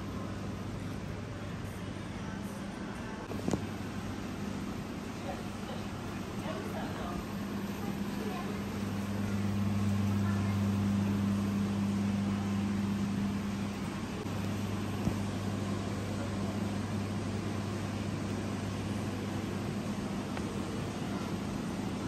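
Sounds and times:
low machine hum with hiss: 0.0s - 22.0s.

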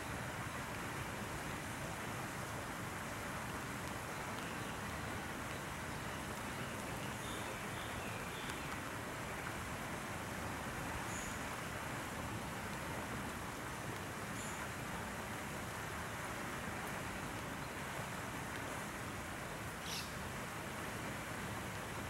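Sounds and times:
steady outdoor hiss: 0.0s - 22.0s.

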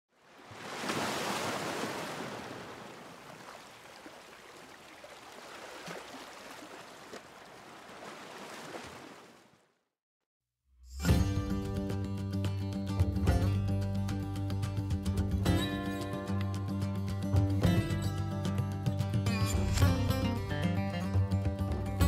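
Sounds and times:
rushing water: 0.1s - 9.7s.

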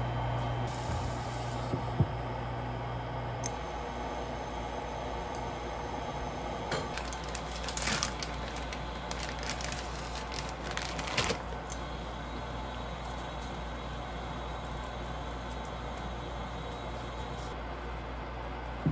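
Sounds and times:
steady low hum: 0.0s - 18.9s
plastic packet crinkling: 6.9s - 11.7s.

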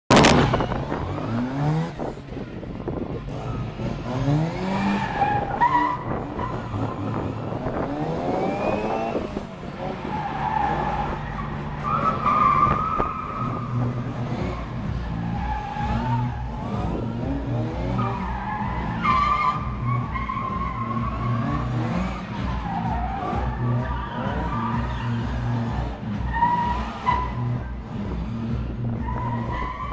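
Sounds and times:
car engine revving: 0.1s - 29.9s
tyres squealing: 17.8s - 27.7s.

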